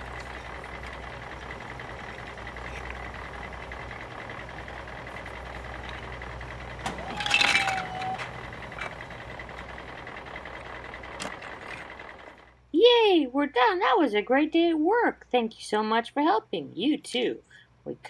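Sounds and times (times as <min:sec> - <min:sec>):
low engine-like rumble: 0:00.0 - 0:18.0
plastic bricks clattering out: 0:07.0 - 0:08.2.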